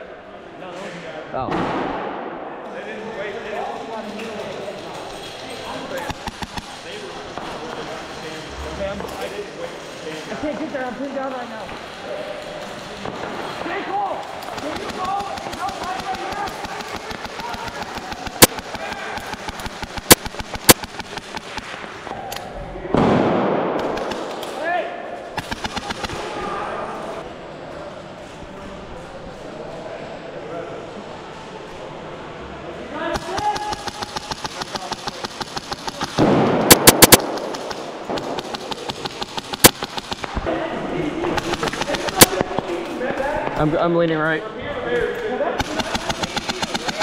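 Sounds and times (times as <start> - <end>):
loud sharp bangs: 1.4 - 2.6, 13.0 - 22.2, 22.8 - 24.6, 25.3 - 26.6, 33.1 - 40.6, 41.2 - 42.7, 45.6 - 47.0
very loud bangs: 1.4 - 2.6, 22.9 - 24.4, 33.2 - 40.5
airsoft gunfire clicks: 14.4 - 21.9, 33.2 - 40.4.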